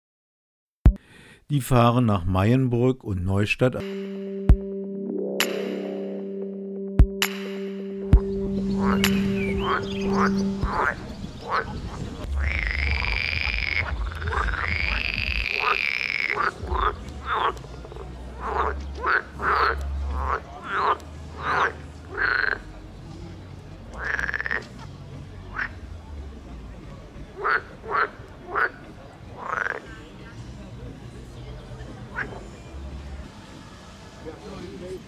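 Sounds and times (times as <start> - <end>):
frogs croaking: 8.2 - 22.8, 24.0 - 24.8, 25.5 - 25.8, 27.3 - 30.1.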